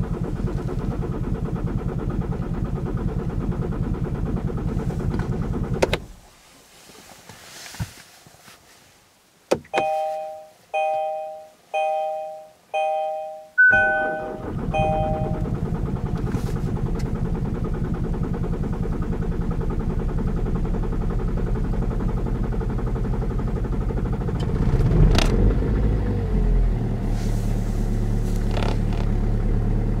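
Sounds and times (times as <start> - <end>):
diesel engine idling: 0.0 - 6.3, 13.7 - 30.0.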